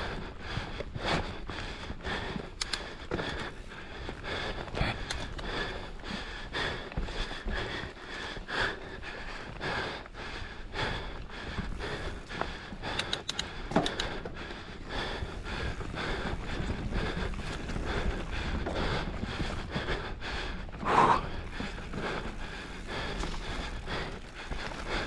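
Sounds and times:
person breathing hard and fast: 0.0 - 25.0
rumble of bike tyres: 0.0 - 25.0
sharp clacks from bike: 2.2 - 3.5, 4.8 - 5.8, 11.8 - 19.6.

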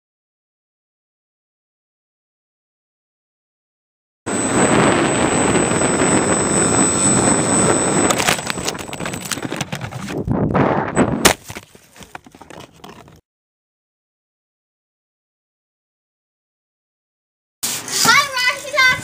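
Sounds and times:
model plane motor and airflow: 4.3 - 10.2
crash through brush: 8.2 - 11.8
loud smack: 11.2 - 11.6.

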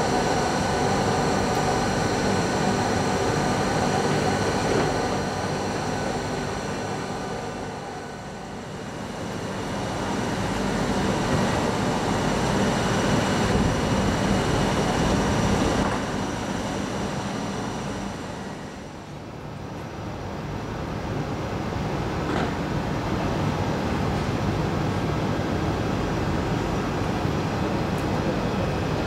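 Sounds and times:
train running in a station: 0.0 - 29.0.

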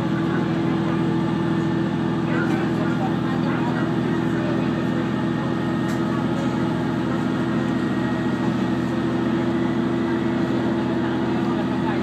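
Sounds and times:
diesel engine drone: 0.0 - 12.0.

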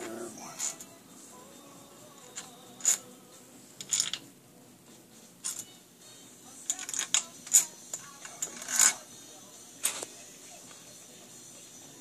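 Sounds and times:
metal parts clinking: 3.8 - 4.3, 5.4 - 5.7, 6.7 - 9.0.

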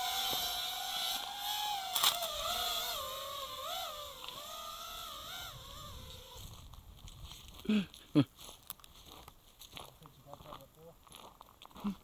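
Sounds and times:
drone motors whining: 0.0 - 6.7.

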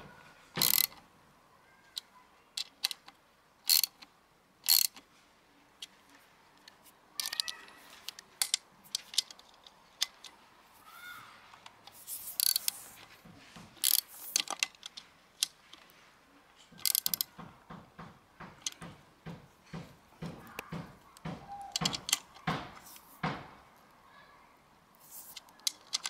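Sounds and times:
socket ratchet clicking: 0.6 - 1.0, 2.6 - 5.0, 7.2 - 10.3, 12.2 - 12.8, 13.8 - 15.6, 16.8 - 17.3, 21.7 - 22.4.

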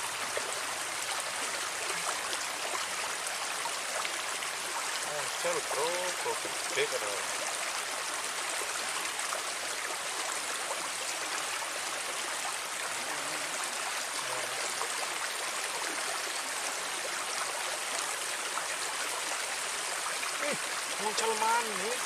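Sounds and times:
water flowing in a ditch: 0.0 - 22.0.

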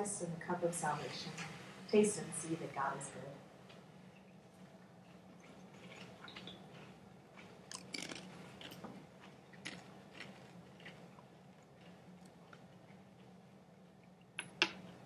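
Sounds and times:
low steady hum: 0.0 - 15.0
bread being eaten crackles: 3.8 - 15.0.

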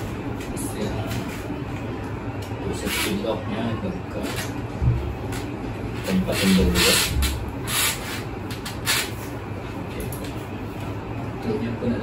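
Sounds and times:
bike parts rubbing and scraping: 2.7 - 3.3, 6.0 - 9.4.

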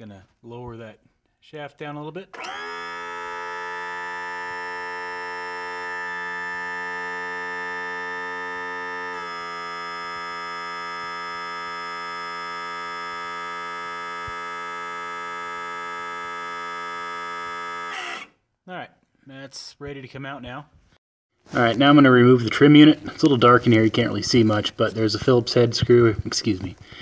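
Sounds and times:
electric pump motor hum: 2.4 - 18.4.

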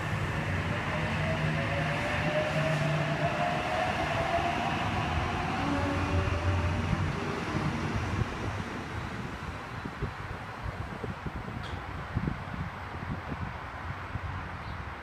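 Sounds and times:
electric train rumble and whine: 0.0 - 12.7.

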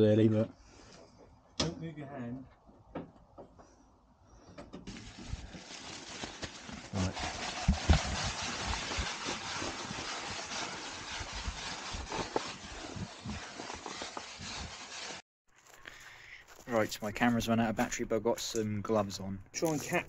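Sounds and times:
rubbing and scraping: 4.8 - 15.2.

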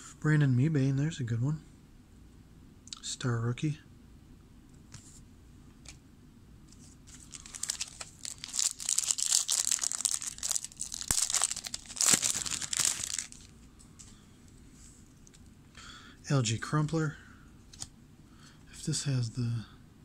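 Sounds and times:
foil wrapper crinkling and tearing: 7.1 - 13.5.

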